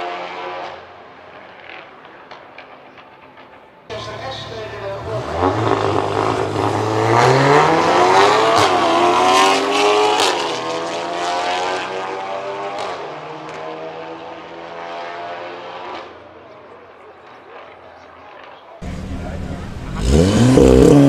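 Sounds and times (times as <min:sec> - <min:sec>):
car engines revving hard: 0:03.9 - 0:16.2, 0:18.8 - 0:21.0.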